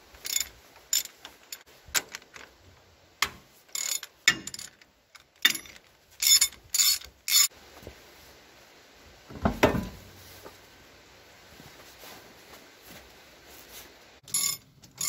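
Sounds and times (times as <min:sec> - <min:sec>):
ratchet wrench clicking: 0:03.7 - 0:04.8, 0:14.3 - 0:15.0
heavy metal clunk: 0:09.3 - 0:10.1.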